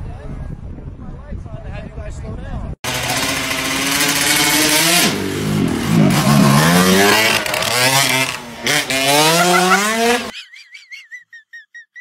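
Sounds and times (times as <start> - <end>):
dirt bike engine revving: 2.8 - 10.3.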